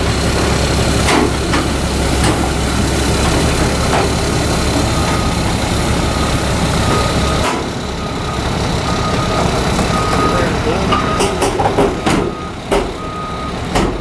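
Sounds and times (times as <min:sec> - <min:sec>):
diesel truck engine rumble: 0:00.0 - 0:14.0
backup alarm beeps: 0:04.0 - 0:13.6.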